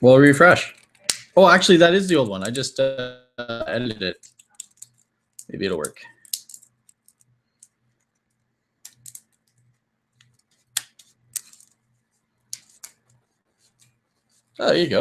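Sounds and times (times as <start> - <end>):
dry plant stems snapping: 4.2 - 7.2, 10.8 - 11.6.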